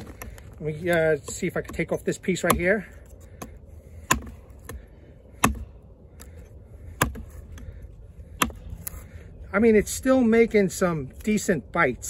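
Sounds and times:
axe chopping wood: 0.0s - 7.7s, 8.4s - 9.0s.

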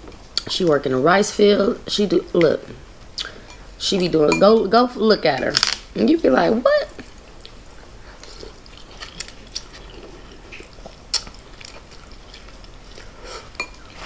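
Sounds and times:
eating noodles: 7.3s - 14.0s.

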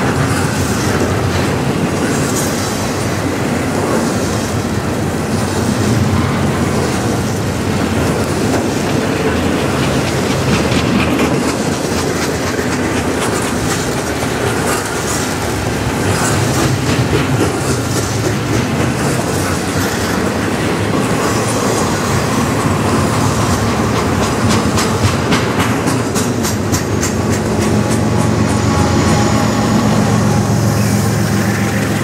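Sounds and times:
steel wheels rumbling on rails: 0.0s - 32.0s
wheels clacking over rail joints: 0.0s - 32.0s.

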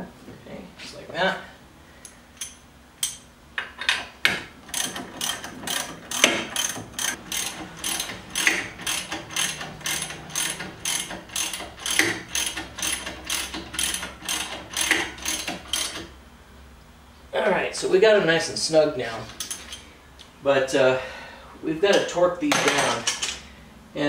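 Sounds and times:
ratchet wrench clicking: 4.7s - 16.0s.

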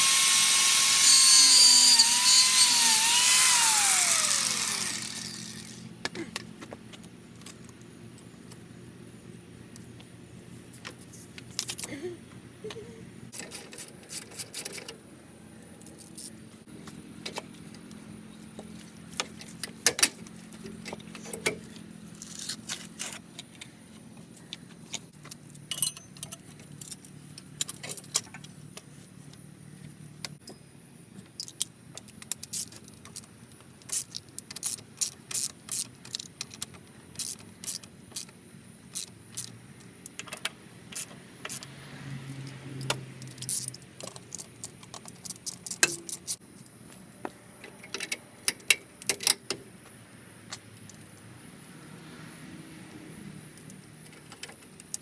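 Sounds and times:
metal tools clinking: 25.2s - 28.3s.

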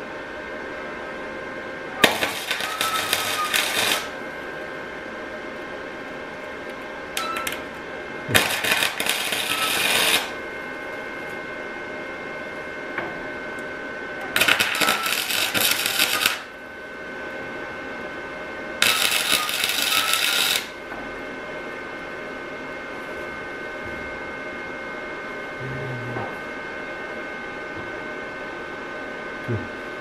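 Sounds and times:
arc welder crackling: 1.9s - 4.7s, 5.5s - 11.4s, 13.6s - 16.6s, 18.8s - 20.9s.

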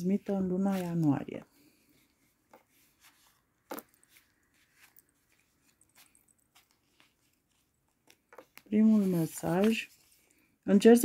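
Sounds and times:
cards being shuffled: 2.4s - 10.3s.

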